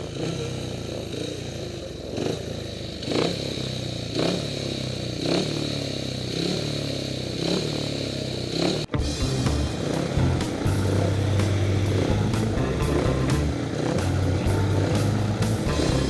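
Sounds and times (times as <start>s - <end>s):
motorcycle engine throttle blips: 0.0s - 16.0s.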